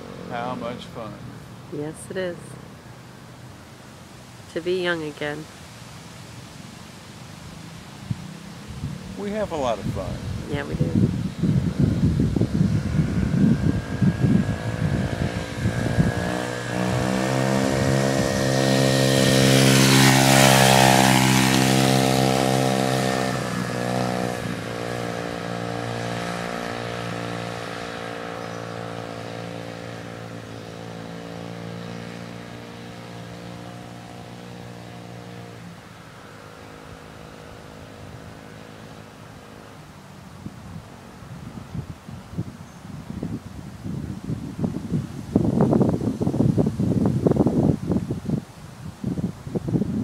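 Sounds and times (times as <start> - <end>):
dirt bike engine passing: 0.0 - 2.6, 7.4 - 40.0.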